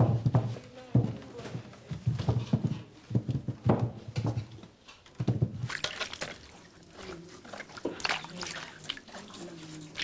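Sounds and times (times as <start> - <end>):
water splashing in a basin: 5.6 - 10.0.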